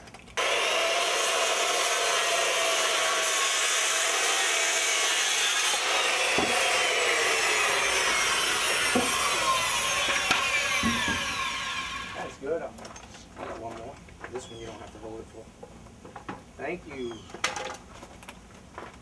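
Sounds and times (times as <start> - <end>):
circular saw cutting wood: 0.4 - 12.4.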